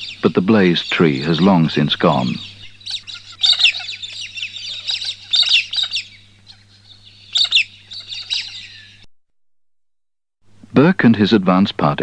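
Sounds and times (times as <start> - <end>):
faint steady low hum: 0.0 - 9.1
small birds chirping and twittering: 0.0 - 9.1.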